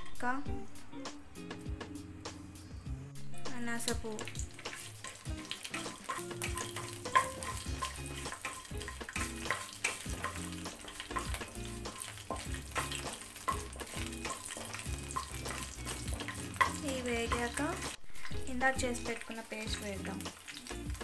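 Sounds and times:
spices sizzling in hot oil: 3.8 - 21.0.

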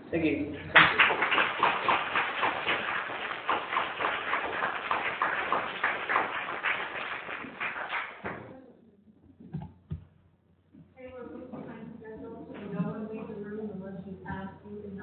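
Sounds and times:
audience applauding: 0.7 - 8.5.

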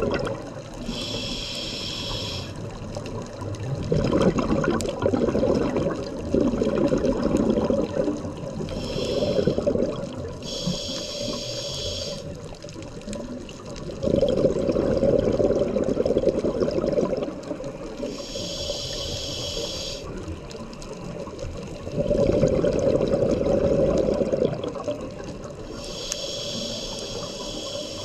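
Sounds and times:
exhaled bubbles gurgling: 0.0 - 28.0
regulator hiss on inhale: 0.7 - 3.0, 8.4 - 13.0, 17.8 - 20.6, 25.4 - 28.0.

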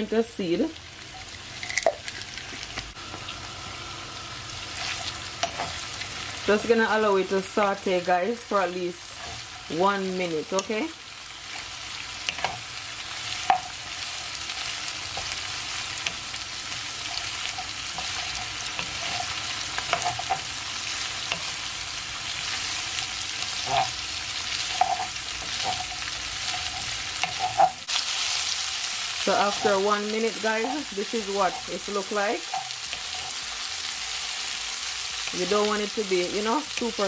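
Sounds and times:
vegetables sizzling in a frying pan: 0.0 - 37.0.

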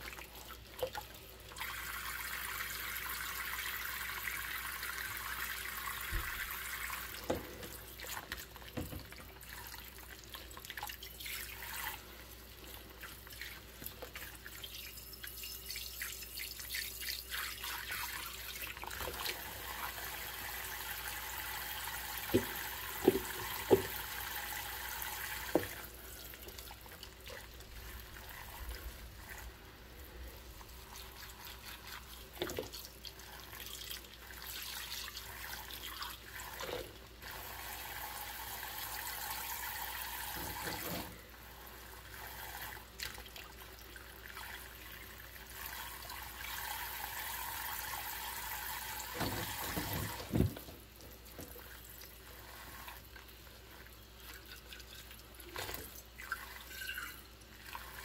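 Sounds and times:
tap water running into sink: 0.0 - 29.6, 30.5 - 41.2, 42.0 - 58.0
dishes knocking and clinking: 22.3 - 24.0
water pouring from cup: 51.4 - 58.0.

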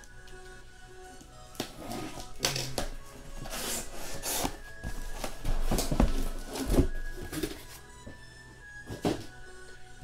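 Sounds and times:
cardboard scraping and rustling: 1.7 - 7.8
boxes thumping: 2.1 - 8.2, 8.8 - 9.4.

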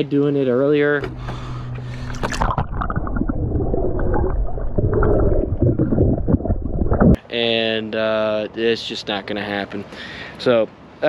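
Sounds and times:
muffled underwater sloshing: 1.0 - 7.2
water splash: 1.9 - 7.2.

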